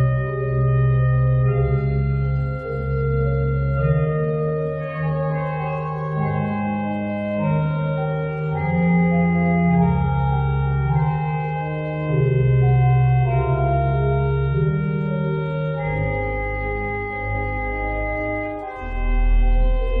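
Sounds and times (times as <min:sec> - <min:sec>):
organ playing slow chords: 0:00.0 - 0:20.0.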